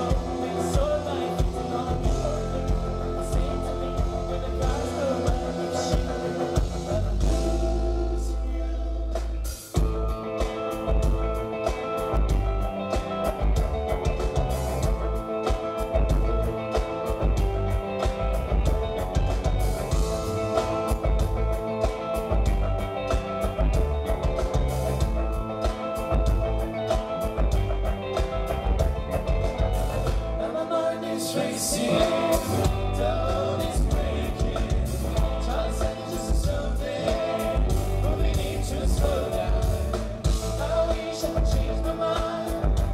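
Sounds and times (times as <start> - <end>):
person singing: 0.0 - 9.4, 30.3 - 42.9
pop-rock band playing: 0.0 - 42.9.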